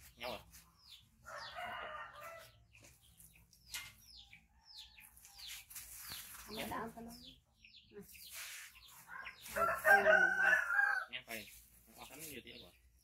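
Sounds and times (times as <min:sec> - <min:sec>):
high falling bird chirps: 0:00.0 - 0:13.0
rooster crowing: 0:01.2 - 0:02.5, 0:09.1 - 0:11.1.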